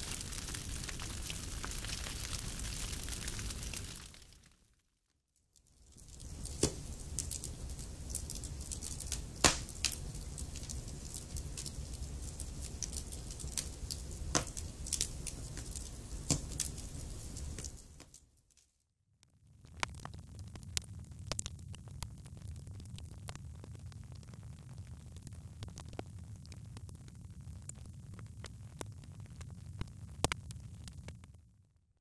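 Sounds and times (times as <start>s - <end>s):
fire flame rumble: 0.0s - 4.5s, 5.8s - 18.0s, 19.6s - 31.4s
logs popping and snapping: 0.0s - 4.6s, 5.9s - 18.2s, 19.7s - 23.4s.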